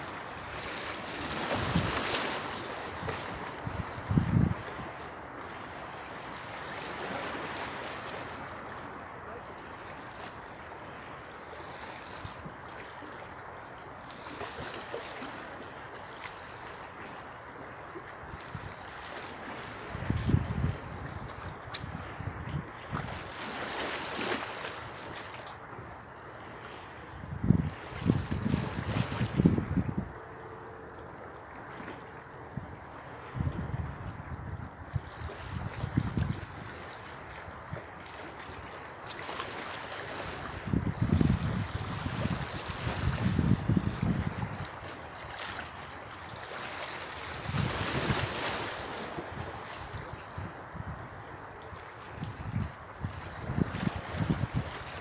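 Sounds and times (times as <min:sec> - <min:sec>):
sea washing against rocks: 0:00.0 - 0:04.6, 0:46.4 - 0:50.0
sea water washing around rocks: 0:00.0 - 0:04.9, 0:35.3 - 0:50.5.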